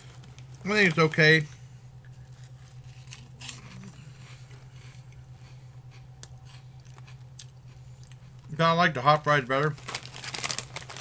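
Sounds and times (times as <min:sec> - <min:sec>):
steady low hum: 0:00.0 - 0:11.0
person chewing crunchy snack: 0:02.0 - 0:08.5.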